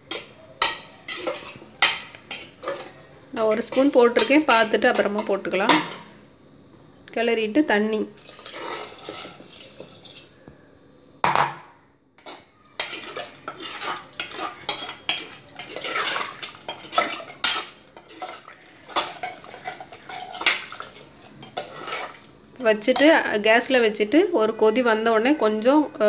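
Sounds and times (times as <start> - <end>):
ladle clinking and scraping pot: 0.0 - 6.1, 8.2 - 10.3, 12.2 - 22.3
water pouring into a pot: 8.2 - 10.3, 12.8 - 22.2.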